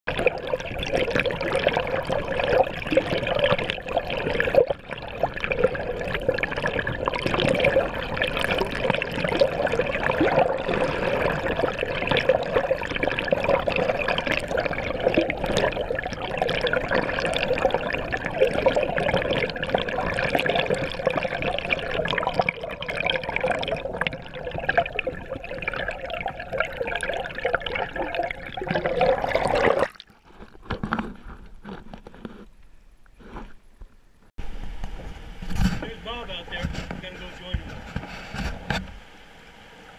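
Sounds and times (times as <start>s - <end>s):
water rushing along a kayak hull: 0.1s - 32.4s, 35.4s - 39.9s.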